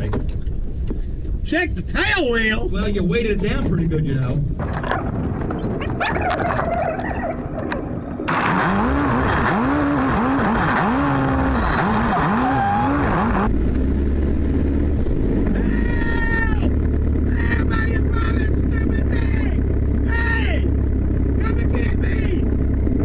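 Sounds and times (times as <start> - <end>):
airplane engine idling: 13.5 - 23.0.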